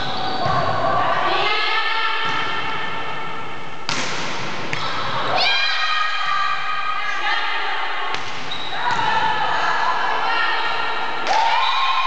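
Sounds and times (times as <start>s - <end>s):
volleyball smack: 3.8s - 4.9s.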